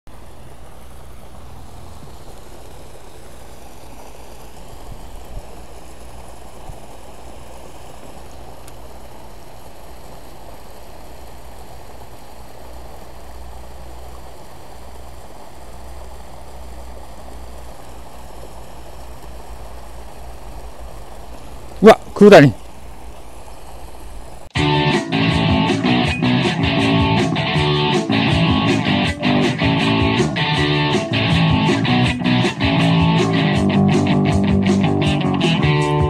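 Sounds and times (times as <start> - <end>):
water rushing in a channel: 0.1 - 8.1.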